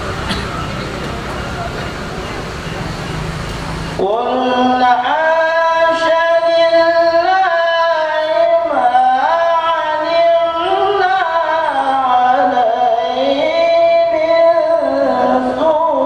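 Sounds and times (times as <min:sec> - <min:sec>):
man chanting melodically: 0:04.0 - 0:16.0.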